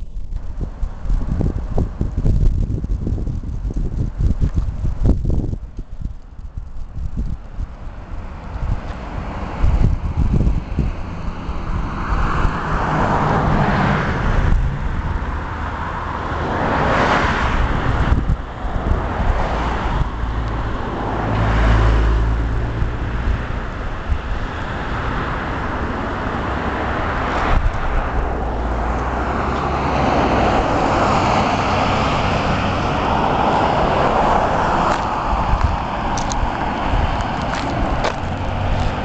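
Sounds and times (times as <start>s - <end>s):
excavator diesel engine rumble: 17.7s - 39.0s.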